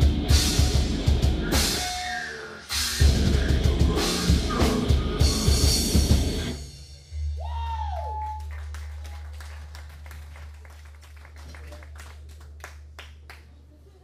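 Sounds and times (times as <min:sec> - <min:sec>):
metal band playing: 0:00.0 - 0:07.3.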